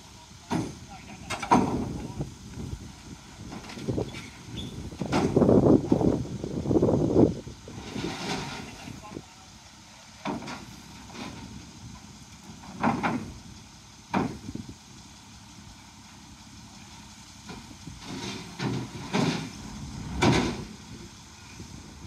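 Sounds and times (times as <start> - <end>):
engine running: 0.0 - 22.0
clunks and knocks: 0.5 - 2.0, 3.4 - 6.0, 7.8 - 8.8, 10.2 - 11.6, 12.4 - 13.4, 14.1 - 14.6, 17.4 - 20.8.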